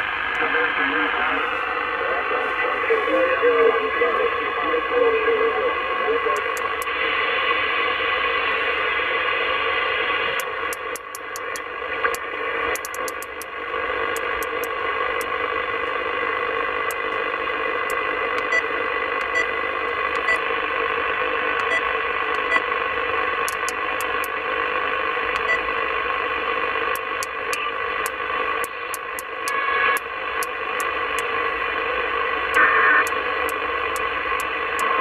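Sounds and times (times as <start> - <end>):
radio receiver hiss: 0.0 - 35.0
tuning knob clicks: 6.4 - 6.9, 10.4 - 13.5, 14.2 - 15.3, 20.1 - 20.4, 23.5 - 24.3, 26.9 - 29.3.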